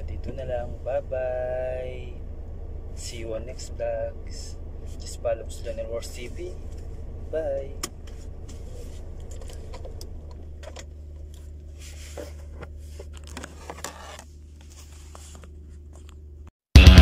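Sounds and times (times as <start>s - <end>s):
car engine idling: 0.0s - 13.6s
phone handling rustles and clicks: 12.1s - 16.3s.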